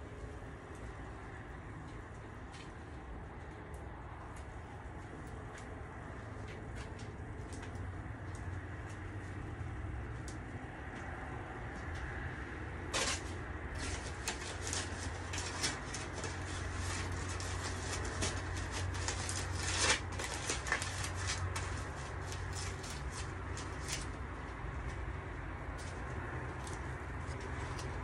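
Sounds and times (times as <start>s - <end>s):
wood fire crackling: 12.6s - 28.0s.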